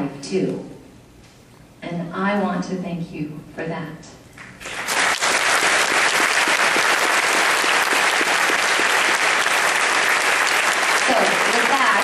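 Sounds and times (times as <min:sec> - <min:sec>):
audience applauding: 0:04.6 - 0:12.0.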